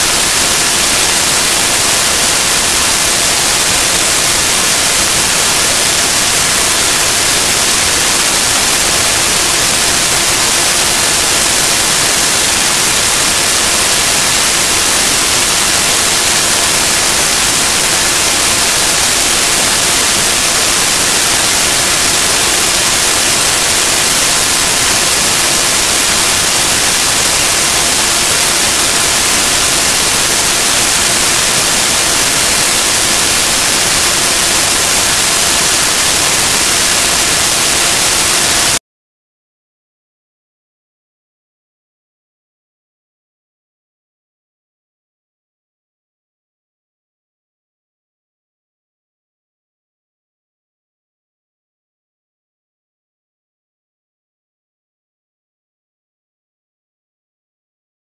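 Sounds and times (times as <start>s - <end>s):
static hiss: 0.0s - 38.8s.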